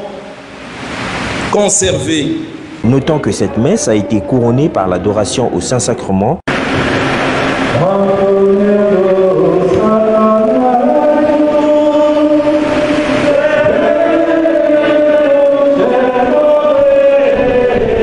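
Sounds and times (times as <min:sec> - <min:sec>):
choir singing a hymn: 0:07.7 - 0:18.0.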